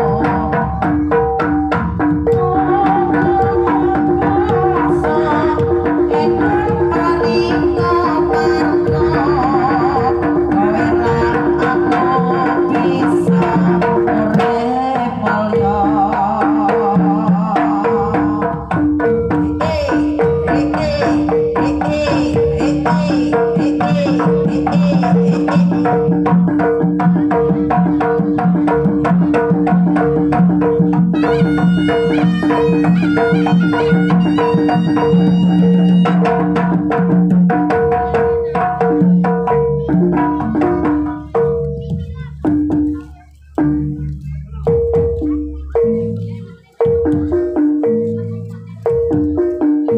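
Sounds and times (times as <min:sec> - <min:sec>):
woman singing through microphone: 0:00.0 - 0:01.4, 0:02.2 - 0:26.2
fast hand drum strokes: 0:00.0 - 0:49.9.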